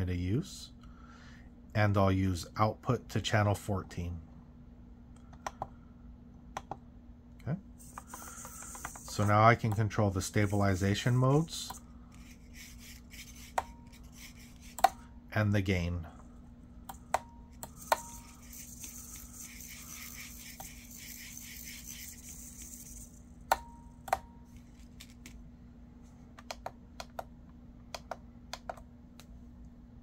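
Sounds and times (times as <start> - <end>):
faint rattling hiss: 17.6 - 23.5.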